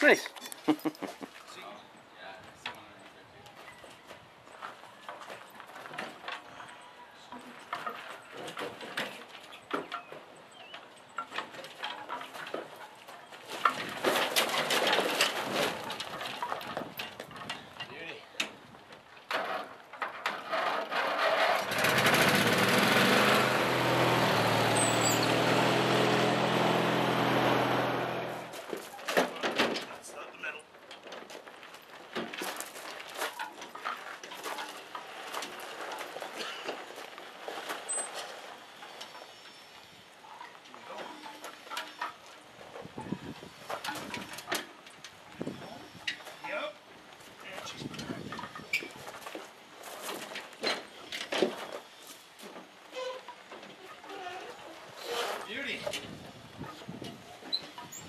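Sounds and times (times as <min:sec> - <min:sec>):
metal clanks and creaks: 0:02.4 - 0:46.6, 0:47.4 - 0:58.0
wheels rattling down metal ramps: 0:05.0 - 0:58.0
lawn tractor knocking and scraping: 0:07.5 - 0:17.9, 0:18.5 - 0:39.4, 0:40.5 - 0:46.6, 0:47.4 - 0:54.2.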